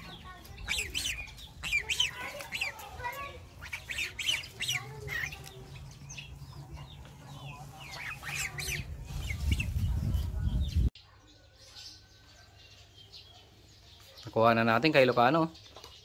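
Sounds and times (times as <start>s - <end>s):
chickens clucking: 0.0s - 10.9s.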